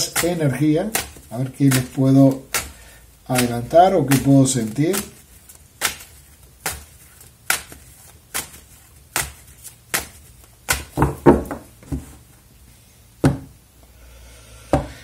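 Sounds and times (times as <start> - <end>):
cards clacking: 0.0 - 11.7
cards knocking on table: 10.7 - 12.2.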